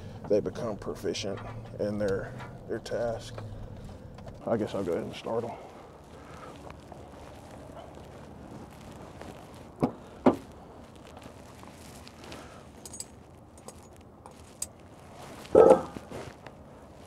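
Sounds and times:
metallic jingling of keys: 12.8s - 14.8s.

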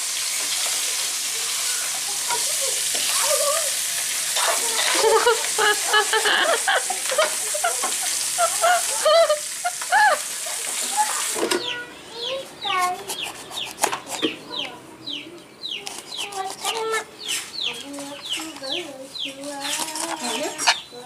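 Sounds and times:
fish sizzling in a pan: 0.0s - 11.6s
chickens clucking: 1.4s - 21.0s
chicks peeping: 11.1s - 21.0s.

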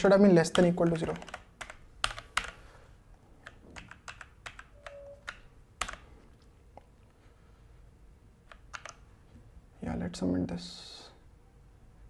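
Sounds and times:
mechanical keyboard typing: 0.4s - 2.6s, 3.4s - 6.0s, 8.4s - 9.0s.

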